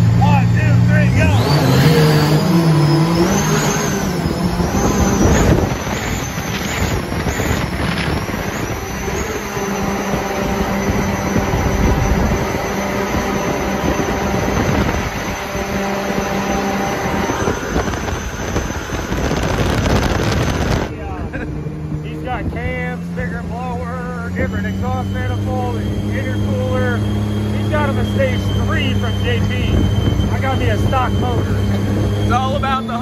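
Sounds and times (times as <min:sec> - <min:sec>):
boat engine drone: 0:00.0 - 0:33.0
high whine: 0:00.0 - 0:33.0
water jet rushing and spray: 0:01.3 - 0:21.0.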